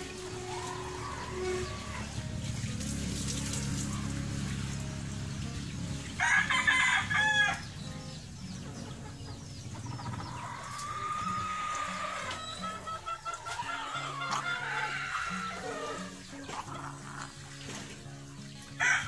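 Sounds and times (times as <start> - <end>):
roosters crowing: 0.0 - 2.5, 6.1 - 8.1, 8.8 - 17.5, 18.8 - 19.0.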